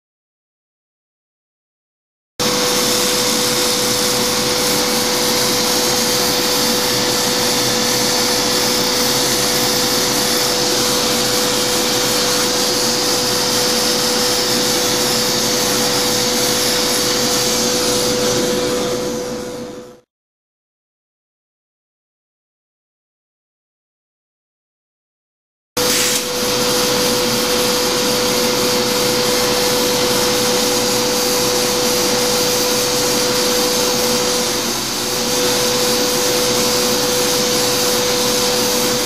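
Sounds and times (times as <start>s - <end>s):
drill bit grinding tile: 2.5s - 18.2s
power drill whining: 2.5s - 19.5s.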